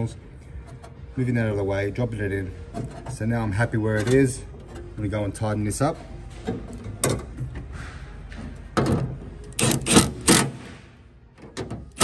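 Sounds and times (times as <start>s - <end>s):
impact driver bursts: 9.6s - 10.8s.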